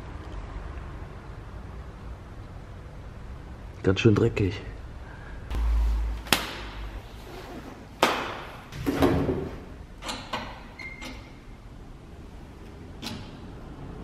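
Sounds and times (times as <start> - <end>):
low rumble: 5.5 - 7.3.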